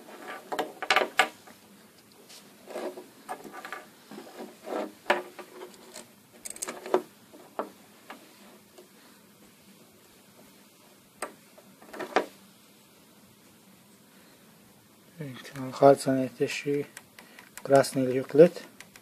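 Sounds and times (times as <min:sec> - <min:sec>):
metal clips clicking and rattling: 0:05.8 - 0:07.0.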